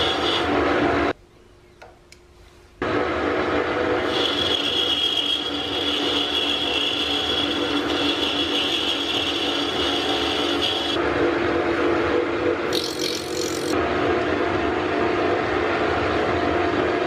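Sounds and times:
lathe machine hum: 0.0 - 1.2, 2.8 - 16.8
high cutting whine: 2.8 - 14.0.

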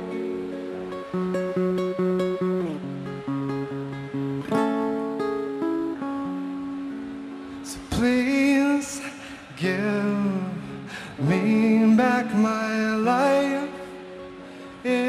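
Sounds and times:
acoustic guitar: 0.0 - 15.0
man singing into a microphone: 7.6 - 15.0.

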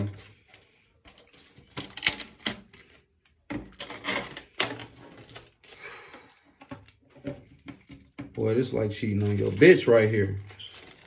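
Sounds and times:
plastic shell crinkling: 0.0 - 11.0
protective film peeling off plastic: 8.9 - 11.0.

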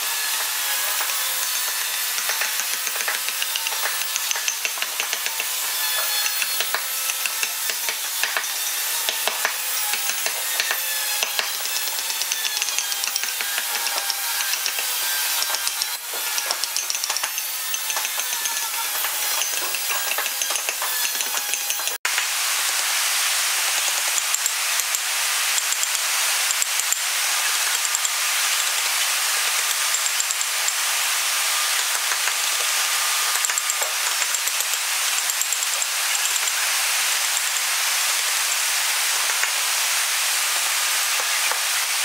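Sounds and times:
wooden mallet tapping chisel: 0.9 - 8.5, 9.1 - 22.0.

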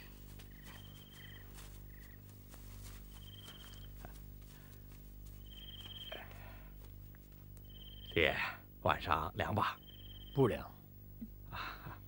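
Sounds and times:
insects chirping: 0.0 - 10.9
low steady hum: 0.0 - 12.0.

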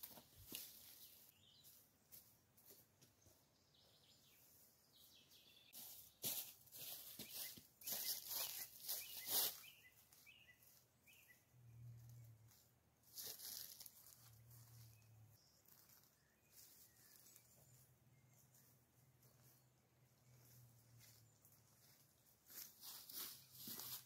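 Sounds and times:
footsteps on dry leaves: 5.7 - 10.9, 12.5 - 19.6, 20.4 - 24.0
faint bird chirps: 6.9 - 11.6, 14.6 - 18.8
moss rustling: 13.1 - 14.6.

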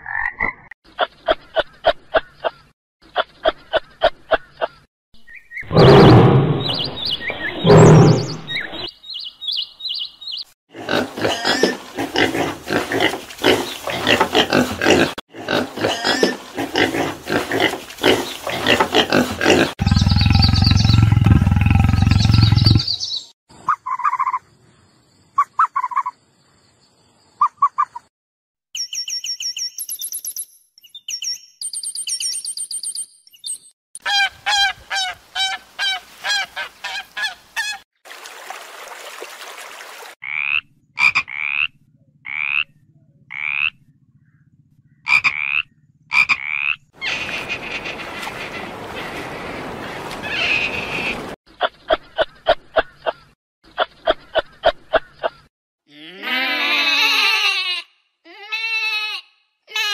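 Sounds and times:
animal calls: 5.6 - 8.9
wild pig calls: 7.4 - 8.6, 10.7 - 22.9, 40.2 - 48.4
tree frog croaks: 40.2 - 46.9.

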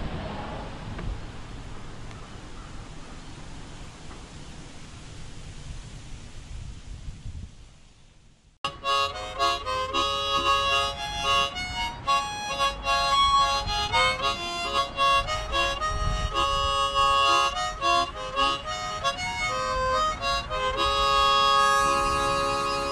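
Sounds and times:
harmonica playing: 8.6 - 22.9.

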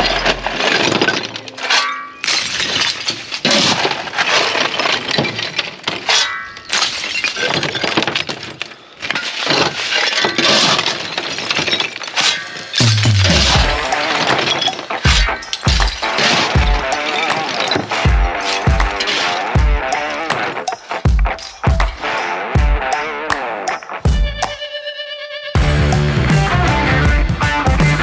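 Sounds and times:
shovel scraping rubble: 0.0 - 21.5
rubble clattering onto a heap: 0.0 - 21.8.

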